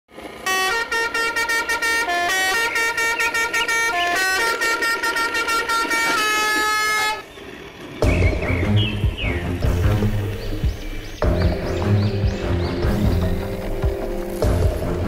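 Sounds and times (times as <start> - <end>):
electronic horn-like tune: 0.4 - 7.3
tapping beat: 8.0 - 15.0.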